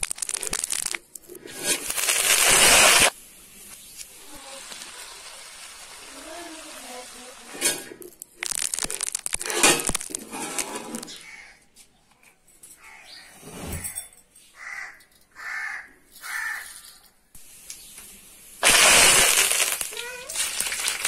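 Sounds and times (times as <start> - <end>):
oil bubbling and hissing: 0.0 - 10.7, 17.4 - 21.0
dried chillies crackling and crunching: 0.0 - 11.2, 18.6 - 21.0.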